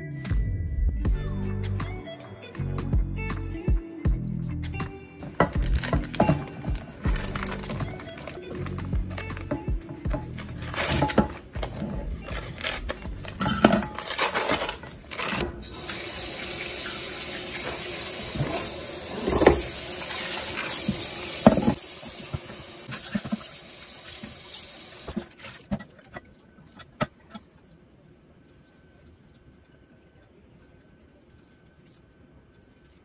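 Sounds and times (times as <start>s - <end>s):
clunks and splashes of handling: 5.3s - 15.6s, 25.0s - 27.7s.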